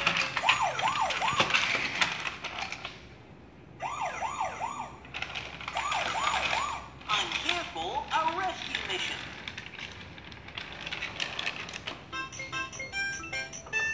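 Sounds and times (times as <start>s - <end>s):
plastic toy car rattling on track: 0.0s - 3.0s, 5.0s - 12.2s
toy electronic siren wailing: 0.4s - 1.7s, 5.7s - 6.9s, 12.2s - 13.9s.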